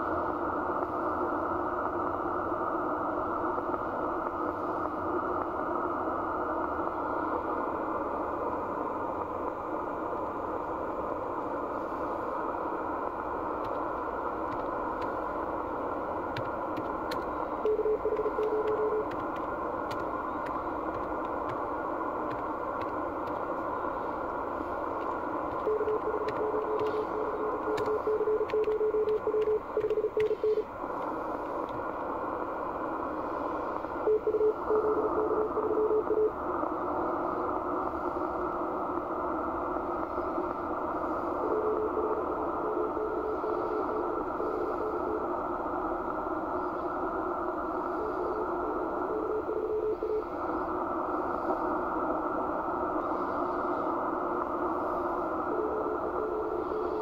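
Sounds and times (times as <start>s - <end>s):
radio band hiss: 0.0s - 57.0s
morse code tone: 17.6s - 19.4s, 25.5s - 30.7s, 34.1s - 36.4s, 41.4s - 45.3s, 48.0s - 50.4s, 55.5s - 57.0s.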